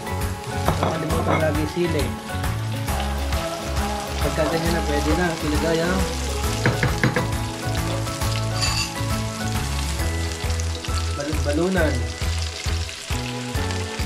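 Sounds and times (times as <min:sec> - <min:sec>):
vegetables sizzling in hot oil: 0:00.0 - 0:14.0
wooden spatula tapping a pan: 0:06.6 - 0:07.4.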